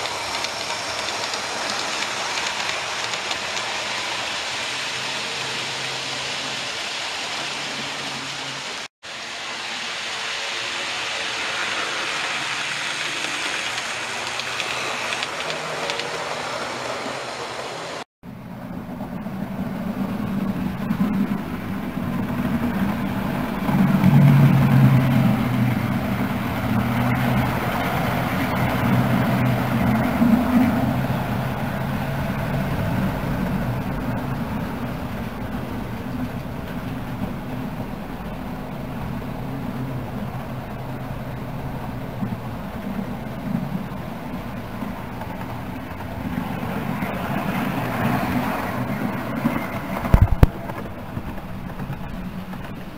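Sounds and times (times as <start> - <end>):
model train motor humming: 0.0 - 18.0
steady hiss: 0.0 - 18.1
train wheels rumbling on track: 0.0 - 52.9.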